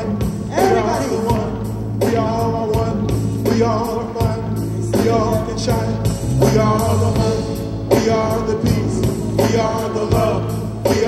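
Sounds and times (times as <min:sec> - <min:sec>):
voices chanting in unison: 0:00.0 - 0:02.4
bass: 0:00.0 - 0:11.0
drum beat: 0:00.0 - 0:11.0.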